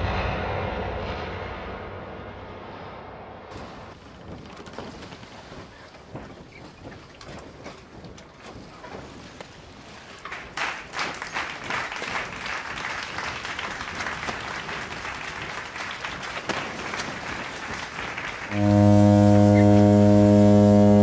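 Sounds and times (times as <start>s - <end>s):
crowd applause: 9.8s - 21.0s.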